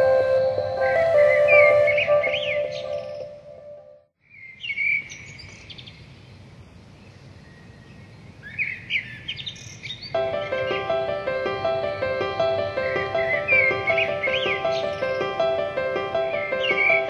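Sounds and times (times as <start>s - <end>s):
small birds chirping: 0.0s - 3.6s, 4.2s - 17.0s
background music: 0.0s - 4.1s, 10.2s - 17.0s
steady low hiss: 0.0s - 17.0s.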